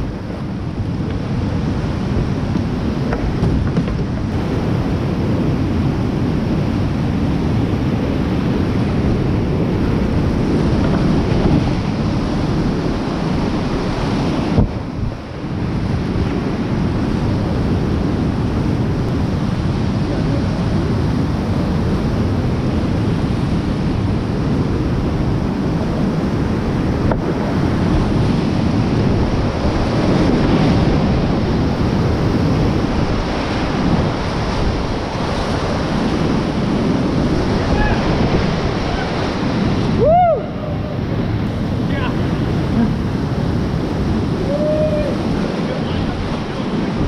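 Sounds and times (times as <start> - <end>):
whitewater rushing and splashing: 0.0 - 47.0
wind buffeting microphone: 0.0 - 47.0.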